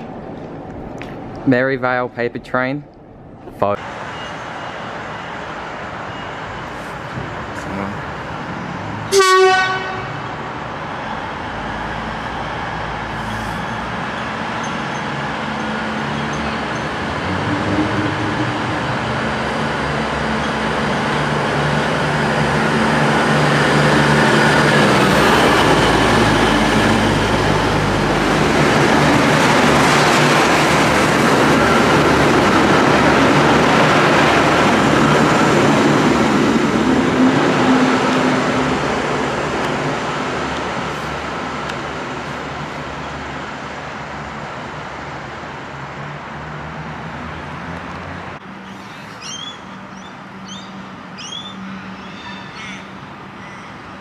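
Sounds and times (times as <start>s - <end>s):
train engines and wheels passing: 0.0s - 54.0s
train horn toot: 9.1s - 10.2s.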